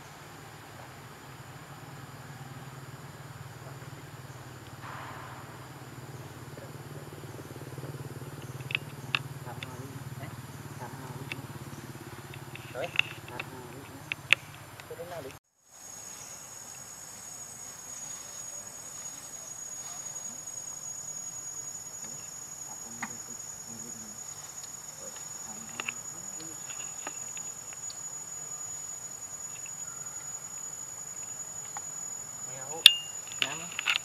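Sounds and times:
insects droning: 0:00.0 - 0:34.0
faint ticks: 0:07.8 - 0:15.4, 0:23.0 - 0:28.1, 0:29.5 - 0:30.3.

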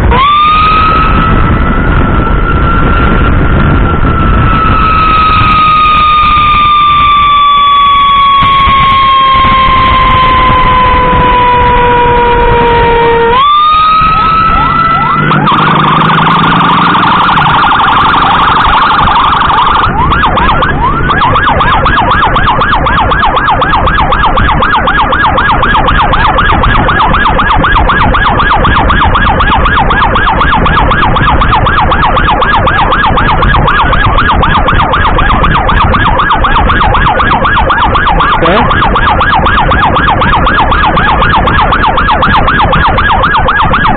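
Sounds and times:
ambulance siren: 0:00.0 - 0:43.9.

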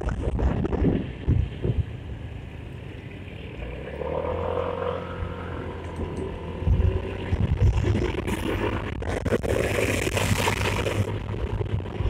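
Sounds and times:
wind buffeting microphone: 0:00.0 - 0:02.6, 0:05.2 - 0:12.0
motorcycle engine: 0:01.0 - 0:12.0.

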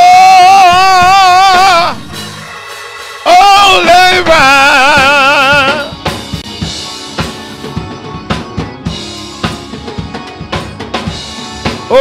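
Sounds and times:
drum kit groove: 0:00.0 - 0:12.0
keyboard chords: 0:00.0 - 0:12.0.

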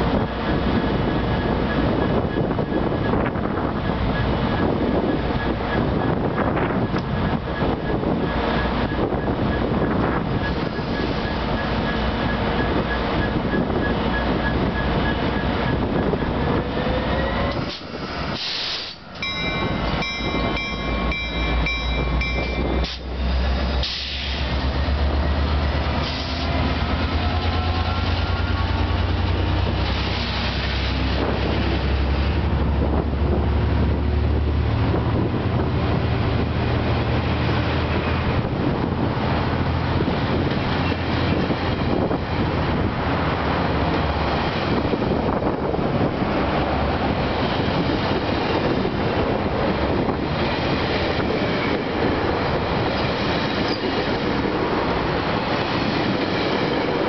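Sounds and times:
diesel locomotive engine rumble: 0:00.0 - 0:57.0
ringing metallic tones: 0:19.2 - 0:22.9.

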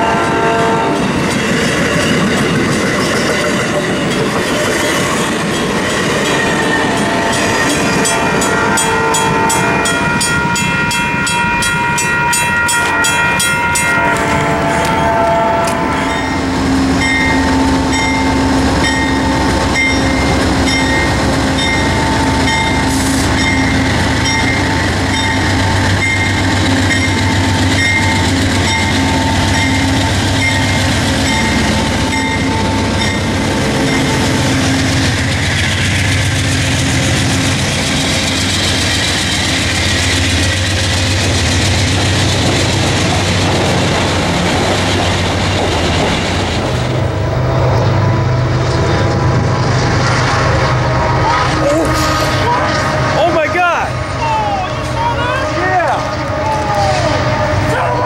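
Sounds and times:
train horn chords: 0:00.0 - 0:01.2, 0:06.2 - 0:35.3, 0:47.2 - 0:58.0
diesel locomotive humming: 0:00.0 - 0:58.0
train cars clattering past: 0:00.0 - 0:58.0.

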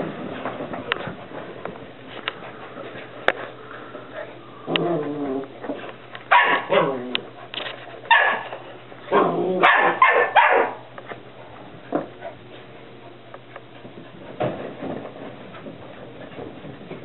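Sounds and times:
puppies barking and yipping: 0:06.2 - 0:07.2, 0:08.0 - 0:10.9.

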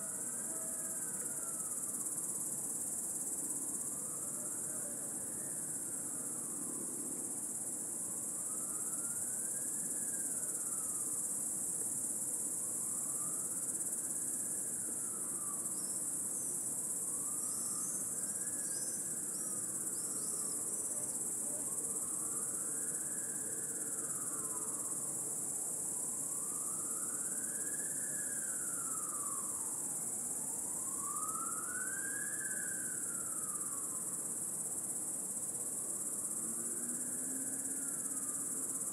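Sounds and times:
cicadas singing: 0:36.8 - 0:38.9.

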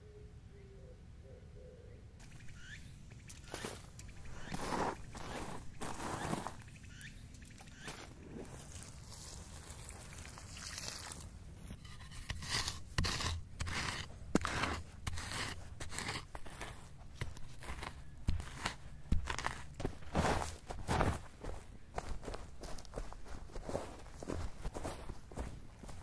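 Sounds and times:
stick raking through ash and leaves: 0:03.3 - 0:06.7, 0:07.6 - 0:19.8.

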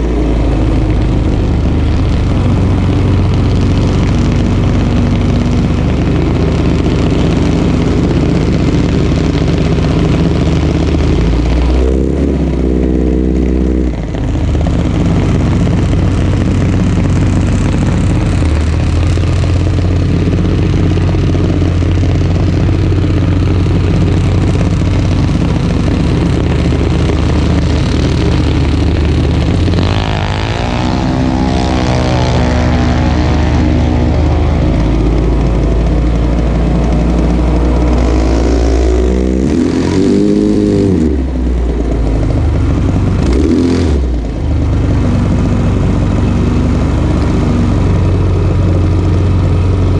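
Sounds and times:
single-cylinder engine idling: 0:00.0 - 0:11.7, 0:12.4 - 0:30.4, 0:44.0 - 0:49.9.

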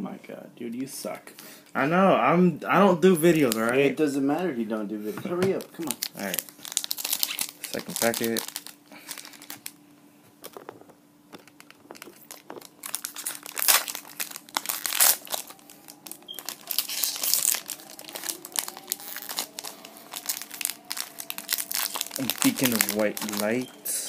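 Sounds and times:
foil pack crinkling and tearing: 0:03.2 - 0:03.8, 0:05.6 - 0:09.8, 0:11.4 - 0:23.7.

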